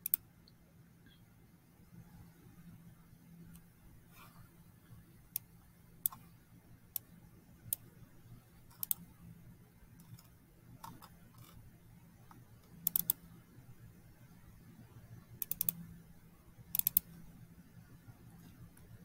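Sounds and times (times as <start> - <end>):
computer mouse clicking: 0.0 - 0.6, 5.3 - 6.2, 8.7 - 9.1, 10.0 - 11.6, 12.2 - 13.3, 15.4 - 15.9, 16.7 - 17.2
faint low hum: 0.0 - 19.0.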